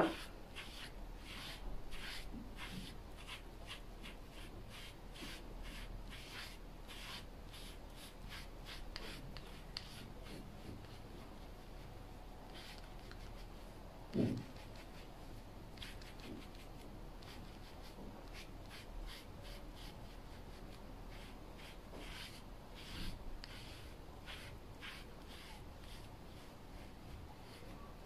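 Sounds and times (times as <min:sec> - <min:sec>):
brush rasping through cat fur: 0:00.0 - 0:11.9, 0:14.2 - 0:15.1, 0:15.7 - 0:27.8.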